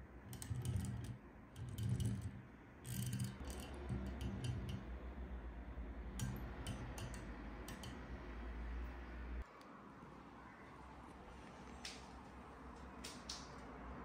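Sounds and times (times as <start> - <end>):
small wheels rolling across a desk: 0.2 - 4.9.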